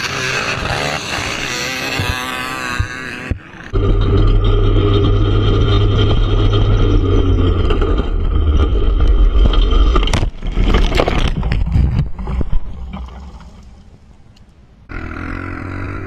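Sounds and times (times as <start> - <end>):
atv engine running: 0.0 - 9.8.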